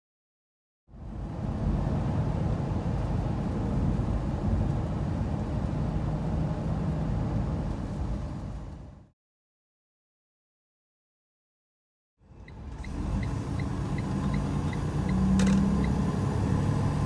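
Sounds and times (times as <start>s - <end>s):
truck engine and road noise: 0.9s - 9.1s, 12.2s - 17.0s.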